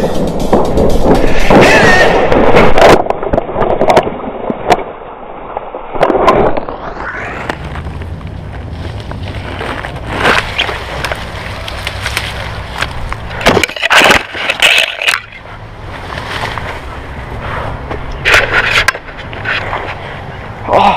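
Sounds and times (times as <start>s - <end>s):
scraping and rustling in bushes: 7.5s - 20.4s.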